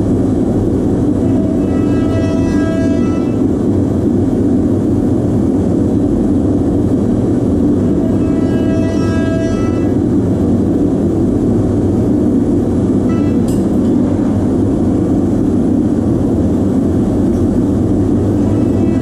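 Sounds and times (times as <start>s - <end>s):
furnace rushing noise: 0.7s - 4.2s, 7.2s - 10.6s, 12.2s - 19.0s.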